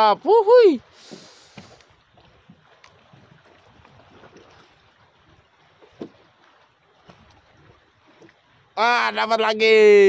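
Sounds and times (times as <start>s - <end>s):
water lapping against boat hull: 0.0s - 10.0s
light knocks on boat: 5.8s - 6.4s.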